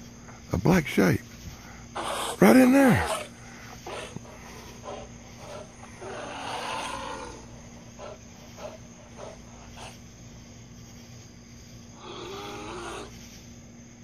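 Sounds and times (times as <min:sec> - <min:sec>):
wild animal calling roughly: 0:01.9 - 0:10.0, 0:12.0 - 0:13.2.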